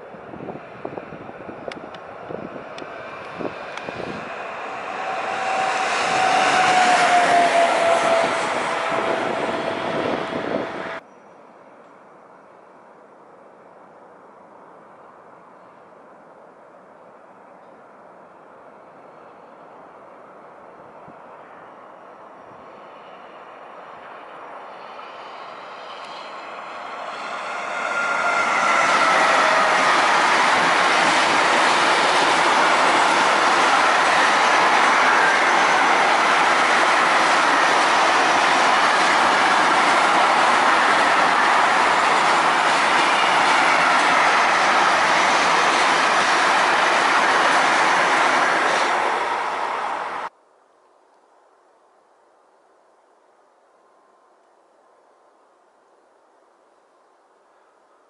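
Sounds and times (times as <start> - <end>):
freight train passing: 0.0 - 11.2, 17.6 - 50.3.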